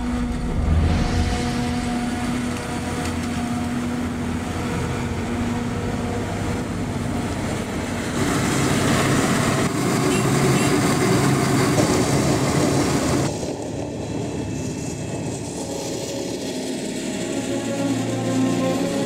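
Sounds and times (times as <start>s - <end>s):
rough engine noise: 0.0s - 11.2s
farm machinery engine drone: 0.0s - 19.0s.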